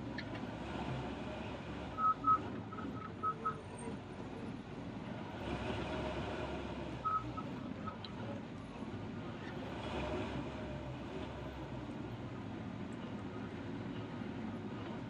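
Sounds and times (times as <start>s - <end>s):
bulldozer diesel engine running: 0.0s - 15.0s
reversing alarm beeps: 2.0s - 3.6s, 7.0s - 8.0s.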